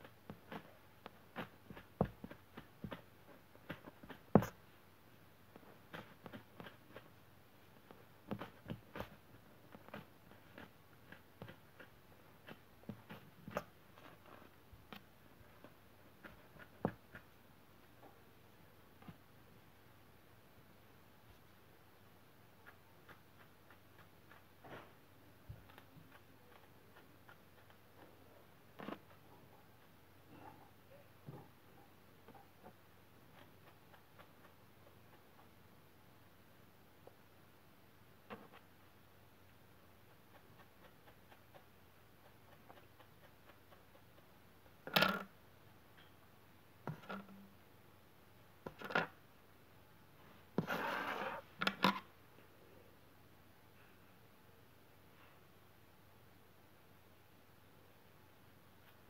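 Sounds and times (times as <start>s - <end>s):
rubbing rustle: 50.2s - 51.6s.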